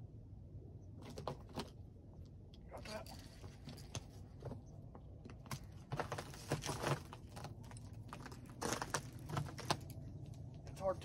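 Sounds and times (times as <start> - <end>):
crunches on snowy gravel: 5.3 - 10.0.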